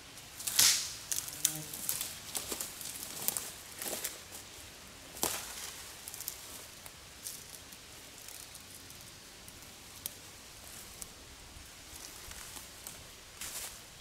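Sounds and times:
dry leaves and twigs crackling: 0:00.0 - 0:14.0
sharp twig crack: 0:00.4 - 0:02.7.

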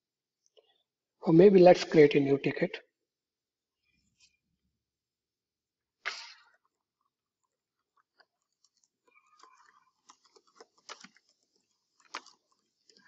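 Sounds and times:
keyboard typing: 0:07.4 - 0:13.0.

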